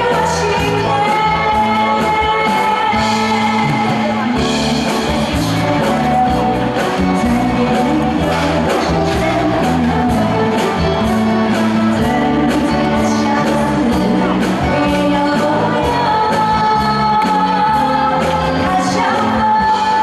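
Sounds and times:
live band playing: 0:00.0 - 0:20.0
woman singing into a microphone: 0:00.0 - 0:20.0.

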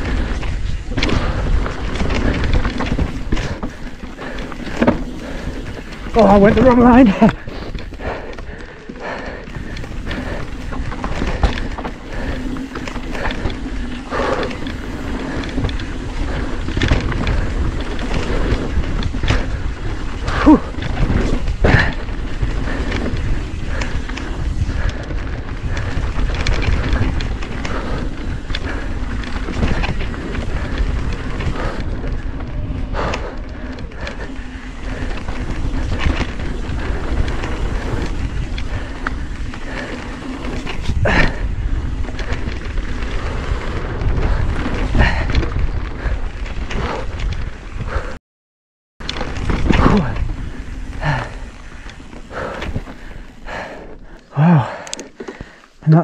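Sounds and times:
bike rattling over bumps: 0:00.0 - 0:48.2, 0:49.0 - 0:56.0
tyres rolling over dirt: 0:00.0 - 0:48.2, 0:49.0 - 0:56.0
wind on microphone: 0:09.4 - 0:48.2.

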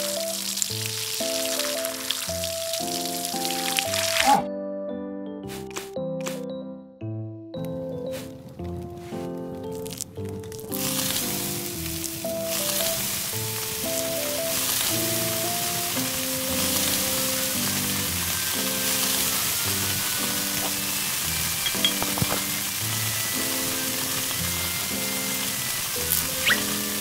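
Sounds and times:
meat sizzling on griddle: 0:00.0 - 0:04.3, 0:10.6 - 0:27.0
light background music: 0:00.0 - 0:27.0.

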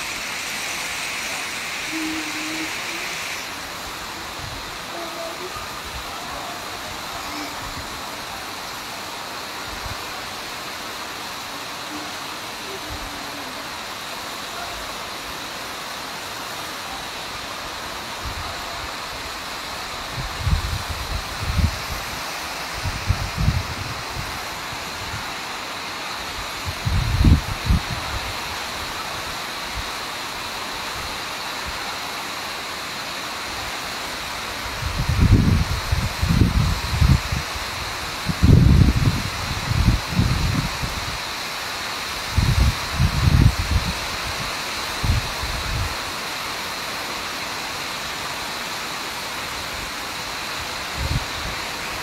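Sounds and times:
heavy rain falling: 0:00.0 - 0:52.0
wind buffeting microphone: 0:22.8 - 0:24.4, 0:26.6 - 0:28.3, 0:38.2 - 0:41.1, 0:42.3 - 0:44.0.

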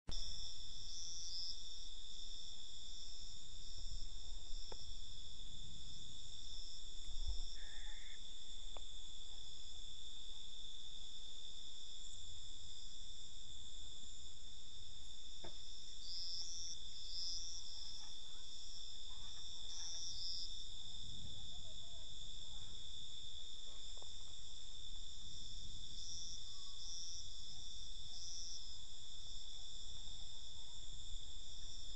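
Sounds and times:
louder insect calls: 0:00.1 - 0:21.5
crickets trilling: 0:00.1 - 0:31.9.

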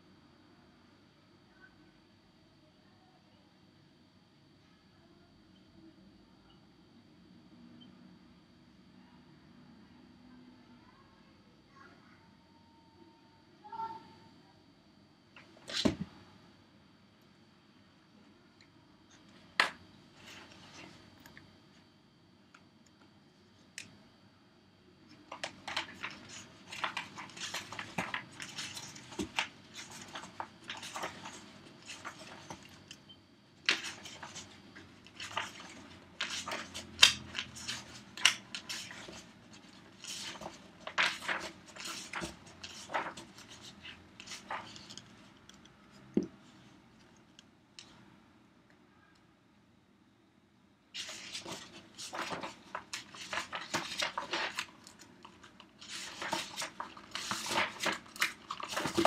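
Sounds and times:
paper rustling and crinkling: 0:19.6 - 0:21.0, 0:25.2 - 0:33.0, 0:33.6 - 0:45.3, 0:51.0 - 0:59.0.

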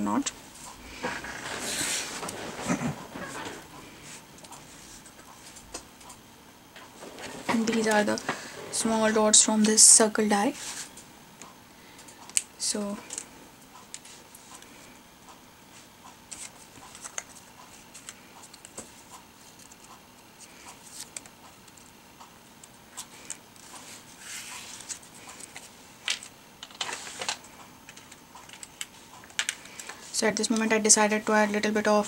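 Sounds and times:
paper rustling: 0:00.9 - 0:05.6.

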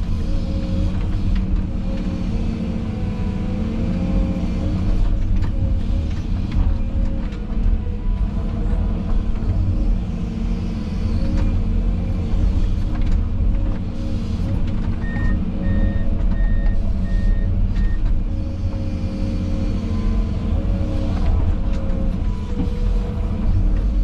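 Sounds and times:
diesel engine running under load: 0:00.0 - 0:24.0
reversing alarm beeps: 0:15.0 - 0:18.0.

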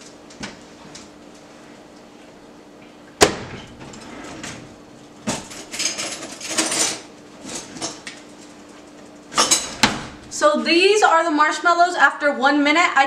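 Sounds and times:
microwave door banging shut: 0:03.2 - 0:04.0, 0:09.4 - 0:10.3
metal cutlery rattling in drawer: 0:05.5 - 0:08.0.

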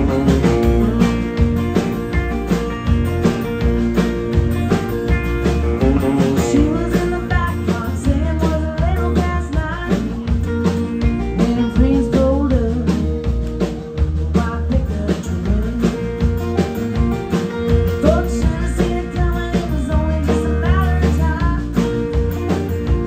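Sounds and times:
woman singing: 0:00.0 - 0:01.3, 0:05.8 - 0:16.5, 0:17.9 - 0:23.0
drum kit beat: 0:00.0 - 0:23.0
electric guitar: 0:00.0 - 0:23.0
strummed acoustic guitar: 0:00.0 - 0:23.0.

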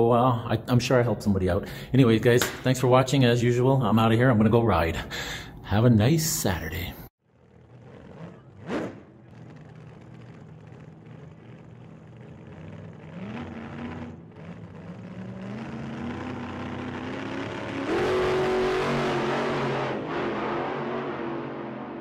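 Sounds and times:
vehicle engine accelerating: 0:07.2 - 0:22.0.

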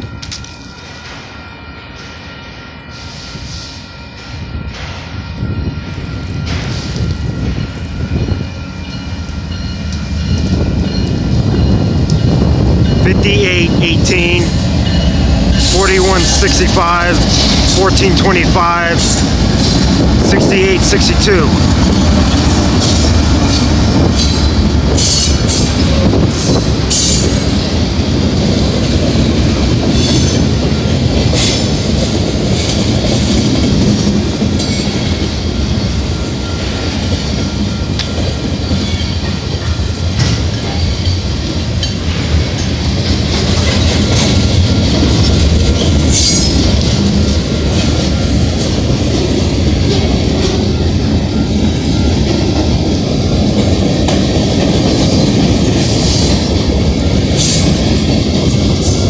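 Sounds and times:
freight cars rolling on rails: 0:14.4 - 0:59.0.

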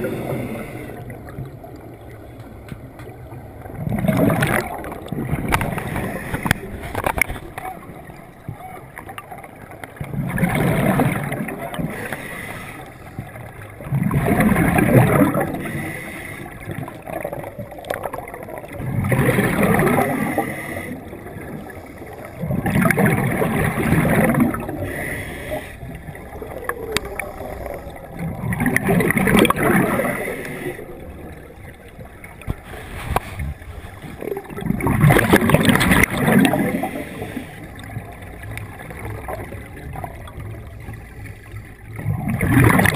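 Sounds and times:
diver inhaling: 0:00.0 - 0:01.3, 0:05.6 - 0:07.0, 0:11.8 - 0:13.2, 0:15.3 - 0:16.6, 0:19.8 - 0:22.4, 0:24.5 - 0:28.2, 0:29.6 - 0:31.8, 0:36.5 - 0:37.9
exhaled breath bubbling underwater: 0:00.0 - 0:01.6, 0:10.0 - 0:41.0.

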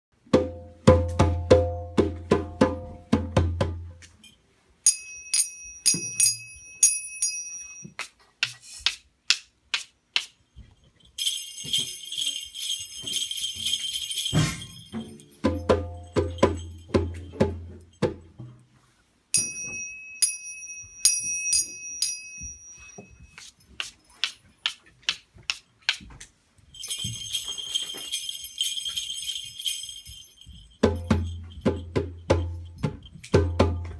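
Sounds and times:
jingle bells shaken: 0:04.1 - 0:07.9, 0:10.4 - 0:18.0, 0:19.4 - 0:24.6, 0:26.6 - 0:33.9
finger cymbals ringing: 0:04.9 - 0:08.0, 0:19.4 - 0:23.5.

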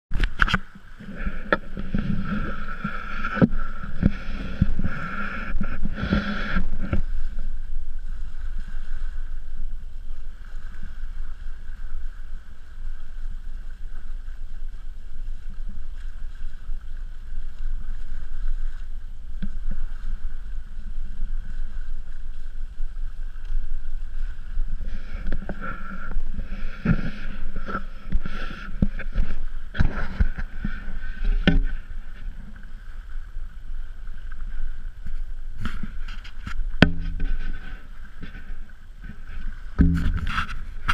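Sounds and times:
wind buffeting microphone: 0:00.1 - 0:40.9
camera pole knocks and rubbing: 0:39.8 - 0:40.9.

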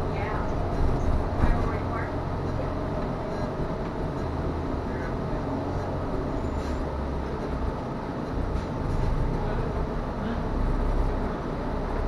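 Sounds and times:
bus engine and road rumble: 0:00.0 - 0:12.0.

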